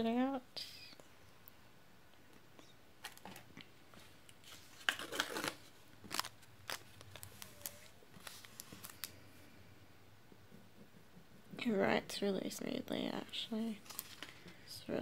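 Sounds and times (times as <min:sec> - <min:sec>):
paper and pen rustles and taps: 0:03.0 - 0:09.2.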